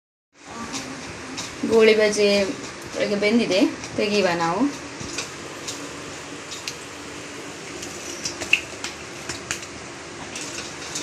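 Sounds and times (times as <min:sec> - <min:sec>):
hot oil sizzling: 0:00.7 - 0:11.0.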